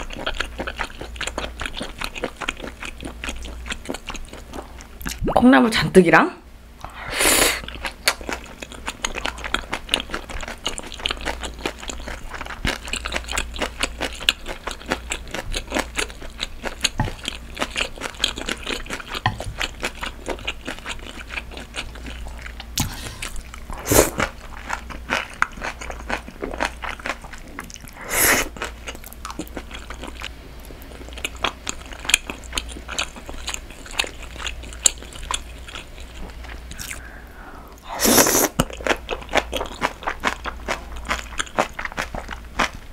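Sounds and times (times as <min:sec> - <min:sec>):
wet chewing crunches: 0:38.3 - 0:42.9.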